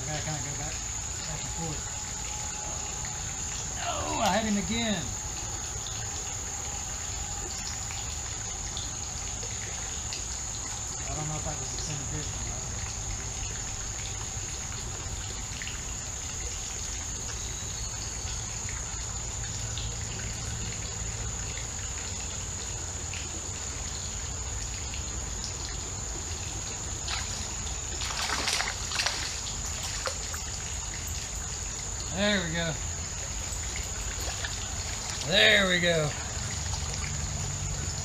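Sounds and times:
creek water trickling: 0:00.0 - 0:38.0
water splashing: 0:25.3 - 0:38.0.

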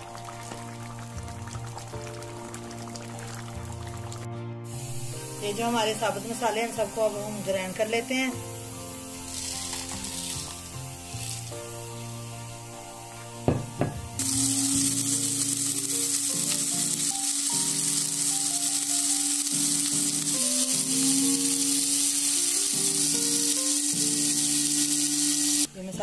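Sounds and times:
spice grinder motor whirring: 0:14.2 - 0:25.7.

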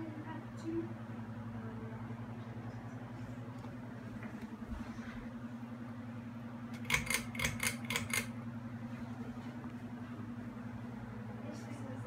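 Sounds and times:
ceiling fan motor hum: 0:00.0 - 0:12.0
sharp rattling clicks: 0:06.8 - 0:08.3.

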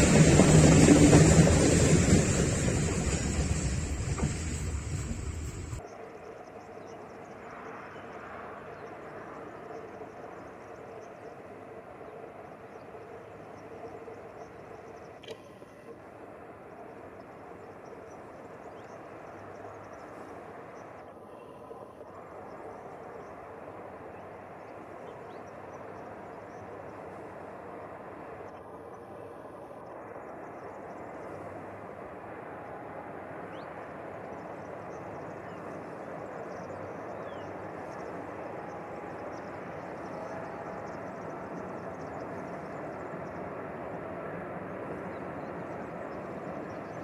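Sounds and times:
freight train wagons rumbling: 0:00.0 - 0:05.8
distant freight train rumbling: 0:00.0 - 0:47.0.

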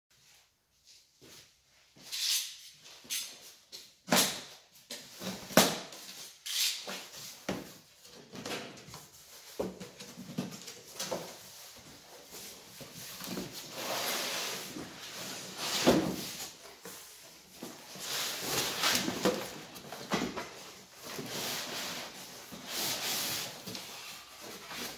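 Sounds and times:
cardboard flaps rustling: 0:07.2 - 0:24.9.

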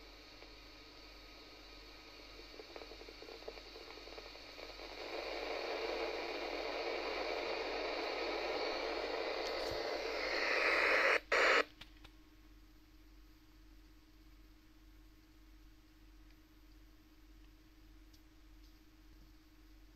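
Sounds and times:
radio static hiss: 0:00.0 - 0:11.8
short burst of radio noise: 0:07.3 - 0:11.7.

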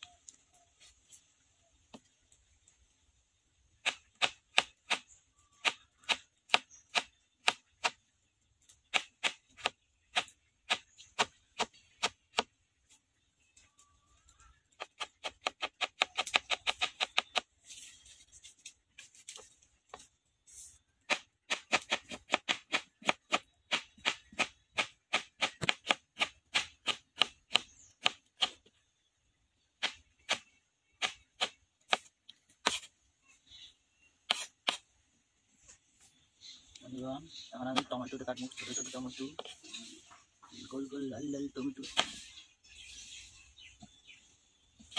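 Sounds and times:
knife chopping on wooden board: 0:21.1 - 0:28.6.

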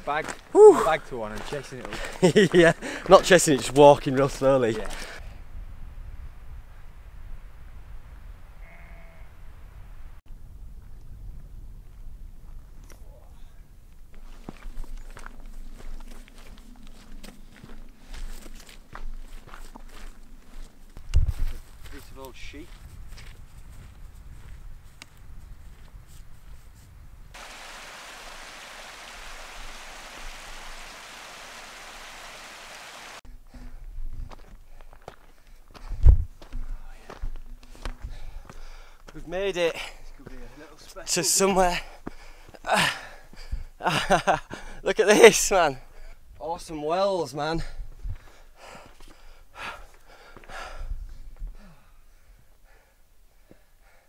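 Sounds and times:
footsteps on grass and stones: 0:00.0 - 0:05.2, 0:14.1 - 0:26.8, 0:34.0 - 0:39.3
person breathing hard: 0:02.8 - 0:03.1, 0:38.0 - 0:39.0, 0:41.8 - 0:43.8, 0:47.7 - 0:54.0
stream running over stones: 0:27.4 - 0:33.2.

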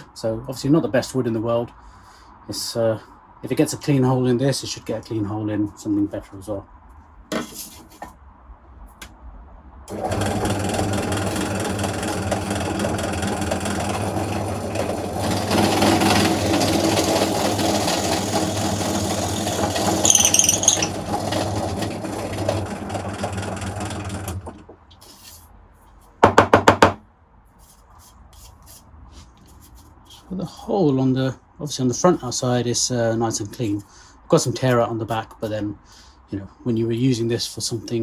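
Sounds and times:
drill press motor running: 0:09.9 - 0:24.6
drill bit cutting wood: 0:15.3 - 0:21.5
high squeak: 0:20.0 - 0:21.0.

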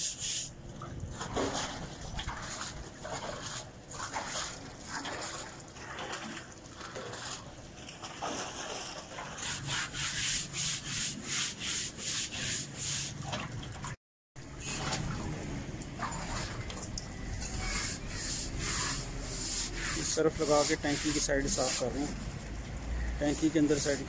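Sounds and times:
stiff brush scrubbing concrete: 0:00.0 - 0:00.5, 0:09.3 - 0:13.2, 0:17.5 - 0:22.2, 0:23.3 - 0:24.0.

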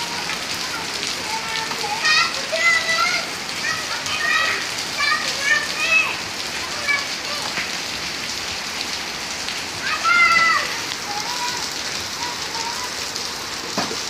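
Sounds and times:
child shouting: 0:00.0 - 0:07.6, 0:09.8 - 0:13.0
rain on wet concrete: 0:00.0 - 0:14.0.

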